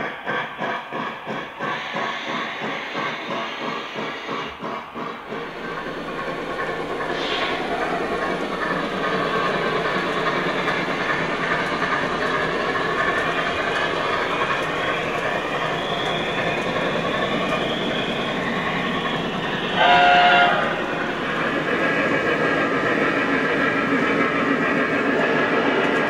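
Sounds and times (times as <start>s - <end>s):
model train wheels clattering: 0.0s - 26.0s
train whistle chord: 19.8s - 20.7s.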